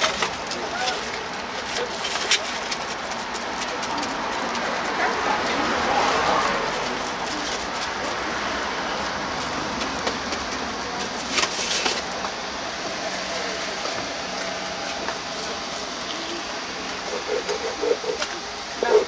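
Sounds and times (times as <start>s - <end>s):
passing traffic: 0.0s - 19.0s.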